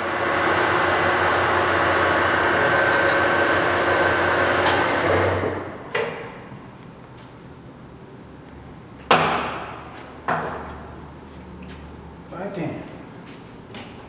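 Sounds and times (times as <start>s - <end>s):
lathe winding down: 0.0s - 5.7s
lathe running with hum and whine: 0.0s - 5.8s.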